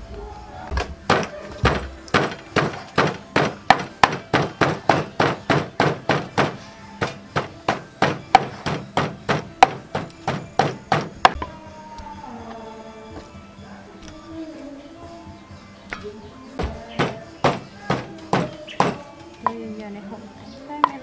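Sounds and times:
pestle pounding in wooden mortar: 1.1 - 11.4, 16.6 - 19.0.

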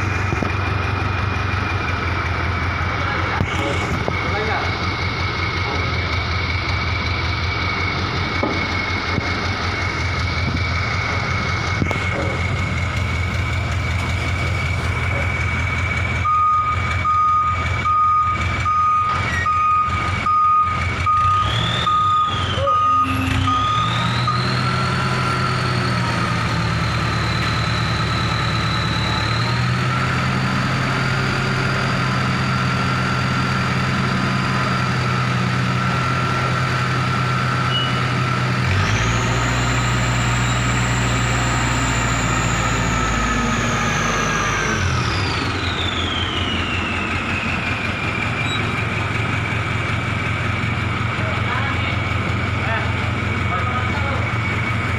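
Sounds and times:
crane engine humming: 0.0 - 54.9
warning beeper: 14.5 - 25.9.

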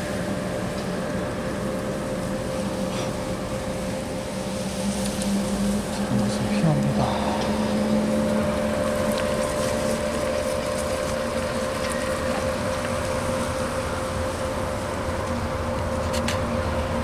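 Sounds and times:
higher constant tone: 0.0 - 17.0
low constant tone: 0.0 - 17.0
even rushing noise: 2.8 - 11.7.

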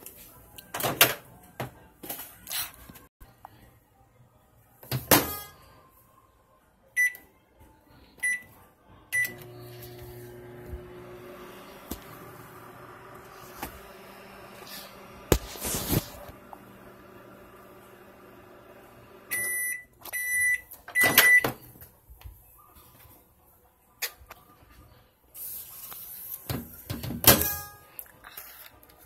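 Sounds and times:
keypad beeps: 7.0 - 7.2, 19.3 - 21.5
microwave humming: 9.2 - 19.7.

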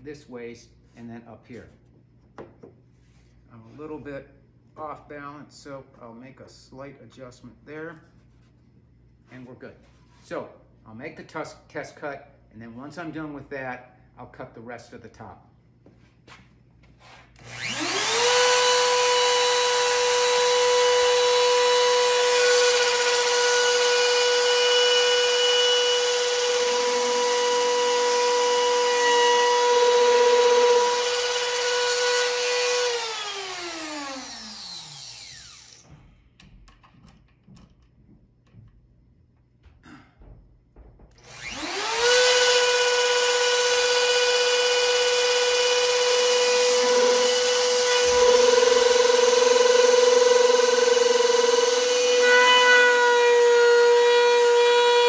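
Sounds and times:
router high whine: 17.4 - 35.8, 41.2 - 53.3.

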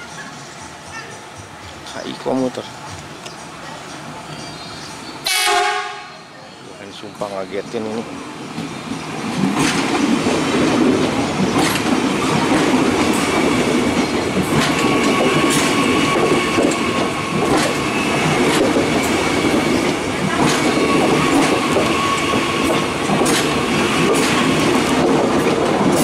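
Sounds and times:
electric train passing: 0.0 - 26.0
wheels clicking over rail joints: 7.8 - 26.0.

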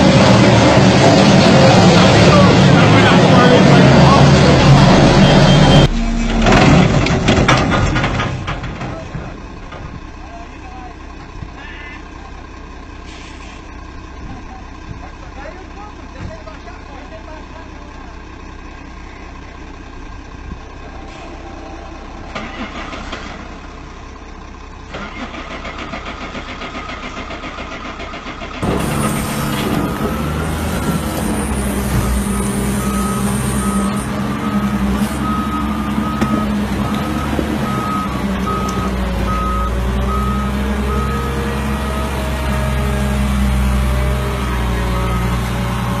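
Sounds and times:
loud diesel engine running: 0.0 - 46.0
reversing alarm beeping: 4.8 - 6.0, 29.0 - 42.4, 44.9 - 45.5
diesel engine running quietly: 8.9 - 30.7, 32.0 - 46.0.

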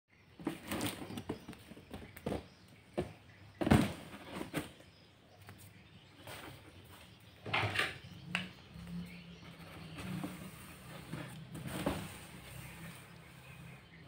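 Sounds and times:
box thump on tiled floor: 3.0 - 4.7.

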